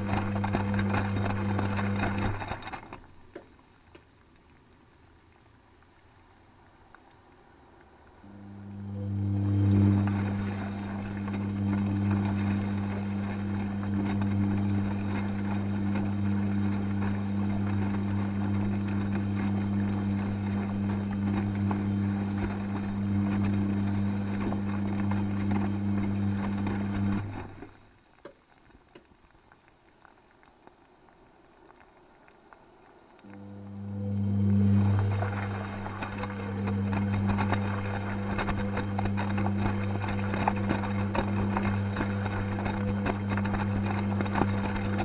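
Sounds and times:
washing machine motor humming: 0:00.0 - 0:03.0, 0:08.2 - 0:27.8, 0:33.3 - 0:45.0
water and wet laundry sloshing: 0:00.0 - 0:27.9, 0:33.3 - 0:45.0.

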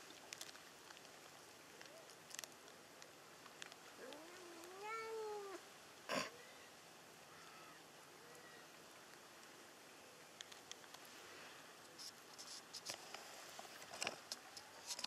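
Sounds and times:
cat meowing: 0:04.0 - 0:05.6.

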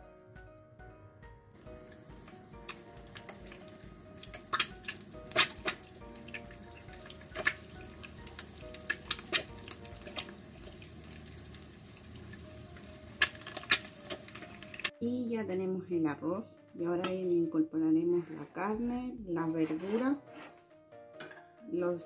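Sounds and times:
egg frying with sharp pops: 0:01.6 - 0:14.9.

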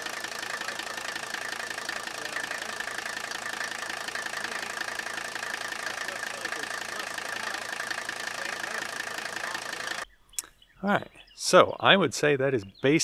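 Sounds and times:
diesel engine idling clatter: 0:00.0 - 0:10.0
steady high whine: 0:00.0 - 0:10.0.

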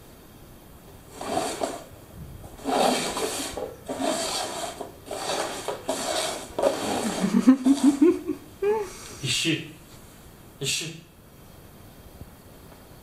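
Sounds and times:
cups scraping across wooden floor: 0:01.0 - 0:08.2.

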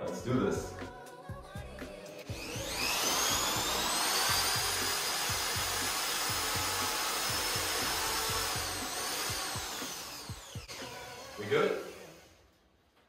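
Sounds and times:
electric drill whining: 0:02.2 - 0:12.6.

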